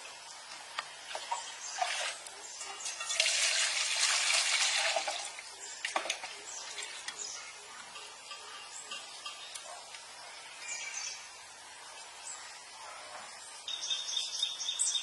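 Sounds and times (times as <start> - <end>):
water pouring into metal bowl: 2.8 - 7.0.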